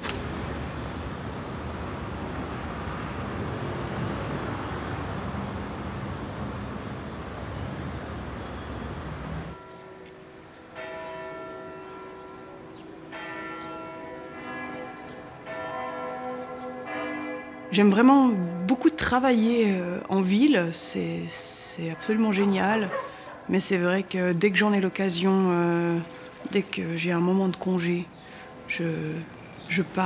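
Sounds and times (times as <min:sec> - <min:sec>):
city background noise: 0:00.0 - 0:30.0
church bells ringing: 0:09.5 - 0:30.0.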